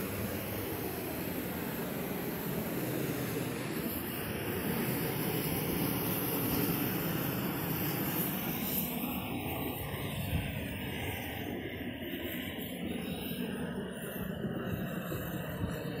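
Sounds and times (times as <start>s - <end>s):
gas torch flame rushing: 0.0s - 11.3s.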